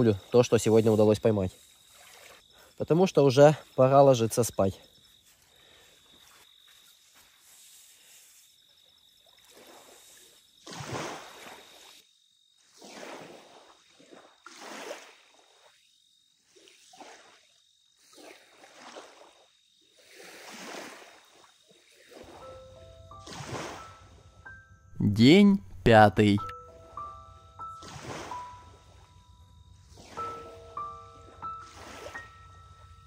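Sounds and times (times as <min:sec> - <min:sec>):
high thin tone: 0:25.0 - 0:26.6.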